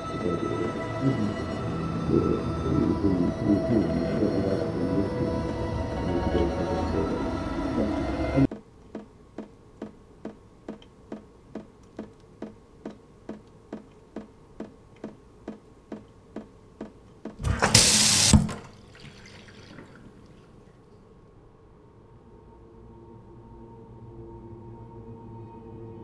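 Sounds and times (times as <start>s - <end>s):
wall clock ticking: 8.4s - 17.4s.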